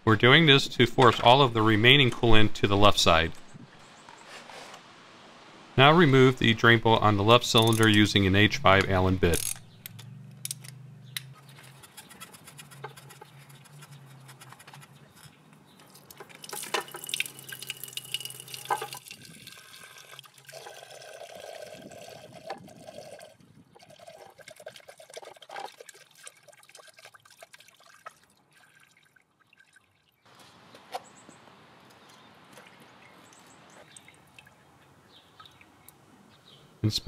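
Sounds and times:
liquid pouring into a container: 15.9 - 30.2.

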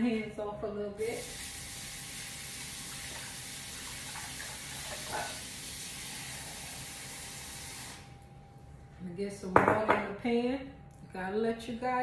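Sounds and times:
faucet running: 1.0 - 8.1.

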